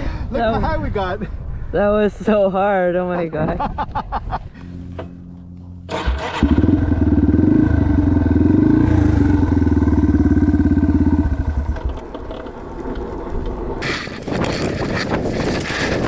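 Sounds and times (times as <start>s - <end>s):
dirt bike engine revving: 5.9s - 11.8s, 13.8s - 16.0s.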